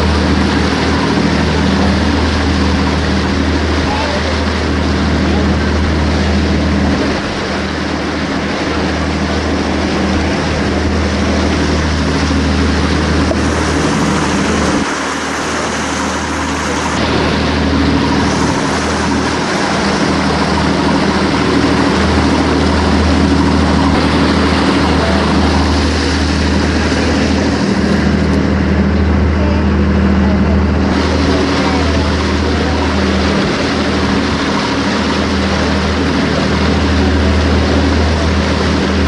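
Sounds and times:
boat engine running: 0.0s - 39.0s
loud wind: 0.0s - 39.0s
water noise: 0.0s - 39.0s.

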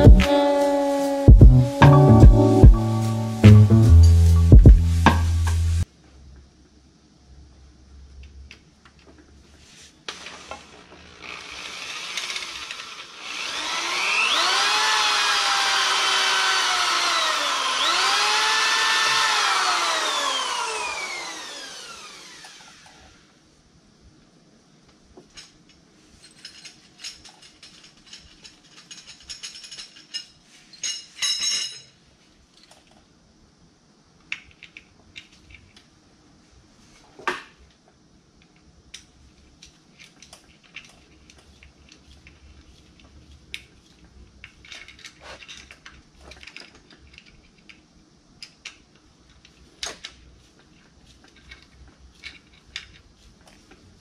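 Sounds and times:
metal tools clinking and scraping: 25.2s - 32.8s, 44.4s - 47.4s.

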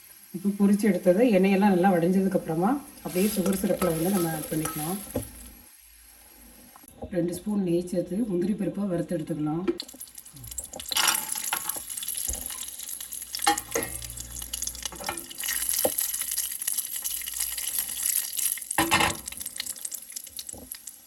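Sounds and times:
nuts sizzling in a pan: 0.0s - 6.9s, 9.8s - 21.0s
spoon scraping a pan: 3.0s - 5.5s.

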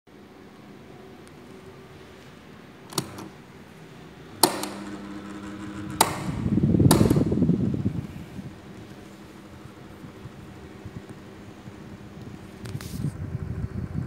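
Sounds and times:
fan motor hum: 0.1s - 14.0s
fan button clicks: 2.9s - 3.4s, 4.3s - 8.1s
air rushing across microphone: 6.3s - 14.0s.

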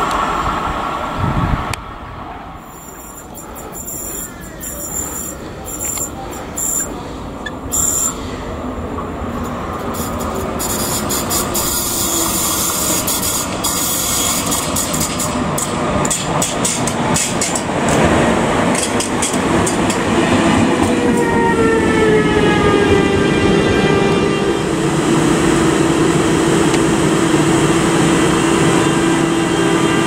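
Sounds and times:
train approaching: 0.0s - 30.0s
wheels clicking over rail joints: 9.4s - 20.2s.

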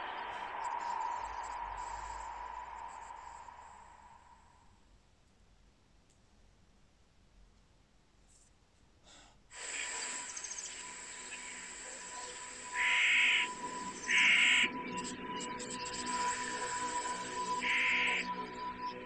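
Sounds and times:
soundtrack bed: 0.0s - 4.8s.

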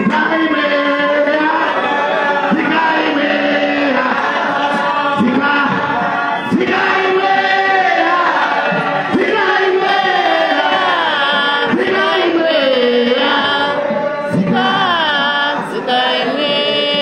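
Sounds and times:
man chanting through loudspeakers: 0.0s - 1.9s, 10.3s - 17.0s.

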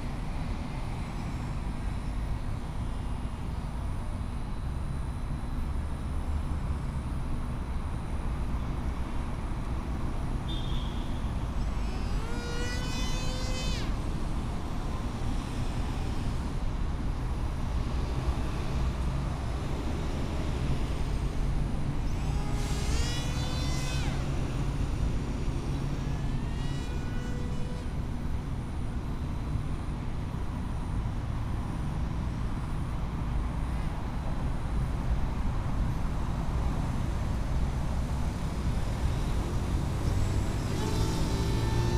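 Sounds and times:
distant traffic rumble: 9.8s - 32.5s
small electric motor whining: 10.5s - 16.8s, 21.6s - 29.4s, 38.9s - 41.9s.

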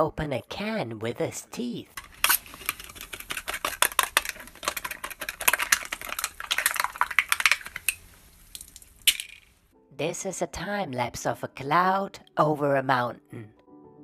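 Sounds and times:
teeth scraping drink can: 2.0s - 9.5s
can fizzing: 2.0s - 9.6s.

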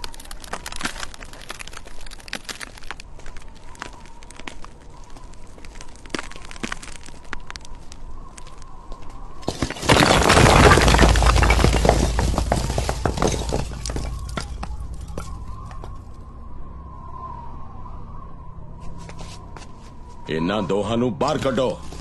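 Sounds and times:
bricks clattering and tumbling: 0.0s - 7.8s, 9.4s - 16.0s
brick wall crashing: 9.4s - 15.8s
low rumble: 11.4s - 18.7s.

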